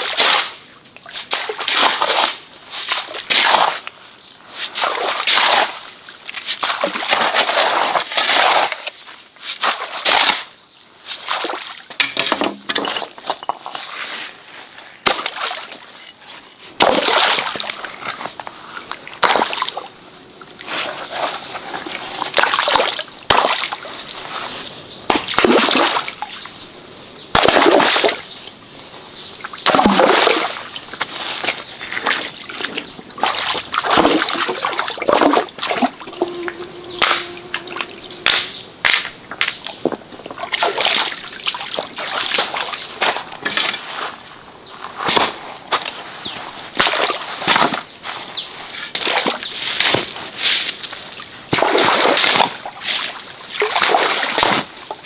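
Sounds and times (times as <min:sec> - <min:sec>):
stream water splashing: 0:00.0 - 0:03.9, 0:04.6 - 0:10.5, 0:15.0 - 0:16.0, 0:16.8 - 0:19.9, 0:20.5 - 0:24.5, 0:25.1 - 0:26.4, 0:27.4 - 0:28.3, 0:29.4 - 0:43.8, 0:48.9 - 0:55.0.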